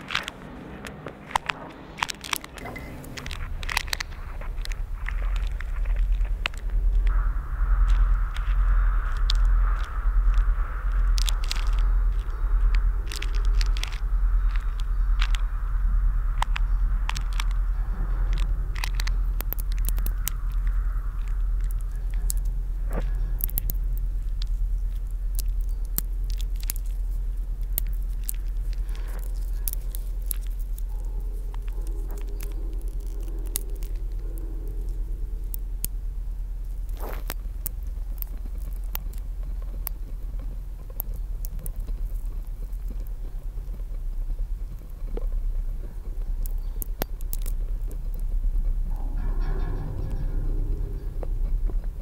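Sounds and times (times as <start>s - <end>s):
faint wavering tone: 0.0s - 25.9s, 47.8s - 52.0s
crackling clicks: 0.0s - 52.0s
deep steady hum: 0.0s - 52.0s.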